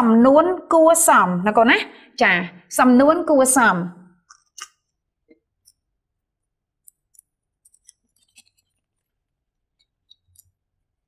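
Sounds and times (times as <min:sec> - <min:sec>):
paper card rustling: 0:07.7 - 0:09.2.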